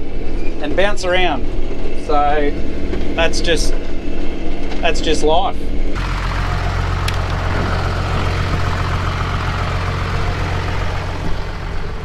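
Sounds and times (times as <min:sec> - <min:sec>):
diesel engine humming: 0:06.0 - 0:12.0.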